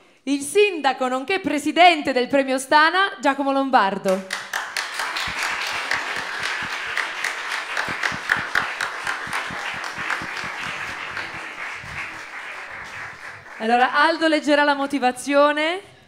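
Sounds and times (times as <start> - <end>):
audience applauding: 4.3 - 14.5.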